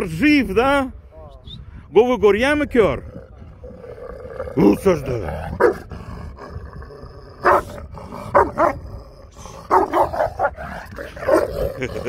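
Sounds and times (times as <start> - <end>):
large dog barking: 5.5 - 5.9, 7.4 - 8.9, 9.6 - 11.9.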